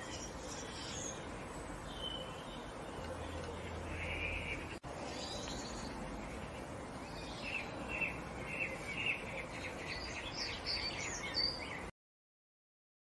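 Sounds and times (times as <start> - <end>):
steady background hiss: 0.0 - 11.9.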